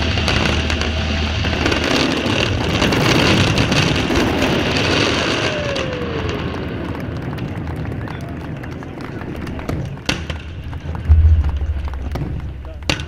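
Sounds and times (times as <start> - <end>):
low rumble: 11.1 - 13.0.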